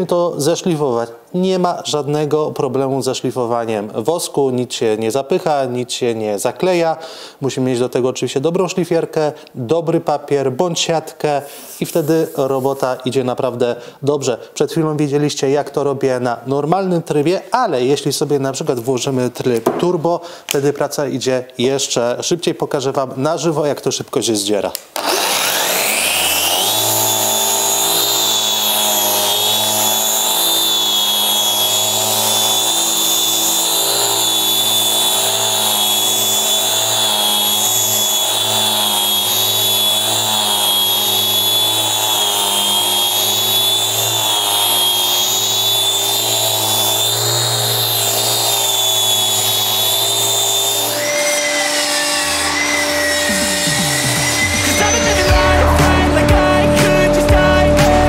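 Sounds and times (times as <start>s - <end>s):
sander motor whine: 25.0s - 58.0s
steady tone: 51.9s - 58.0s.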